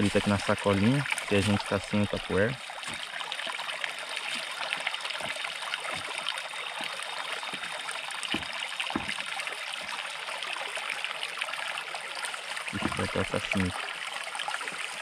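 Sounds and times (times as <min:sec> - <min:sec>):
river water flowing: 0:00.0 - 0:15.0
soft low thumps: 0:06.8 - 0:09.3, 0:12.8 - 0:13.2.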